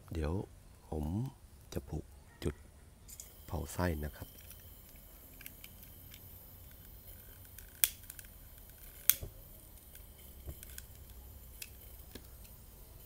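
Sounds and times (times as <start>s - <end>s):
lighter trigger clicking: 5.4s - 12.6s.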